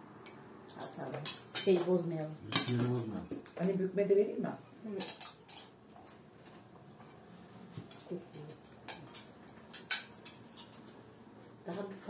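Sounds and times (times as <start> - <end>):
forks clinking on plates: 2.5 - 3.2, 5.0 - 5.8, 7.9 - 10.9.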